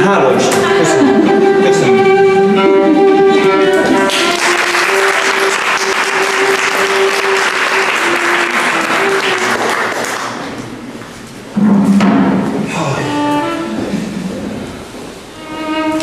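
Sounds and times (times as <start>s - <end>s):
violin music: 0.0s - 10.4s, 12.6s - 16.0s
audience applauding: 3.7s - 10.6s.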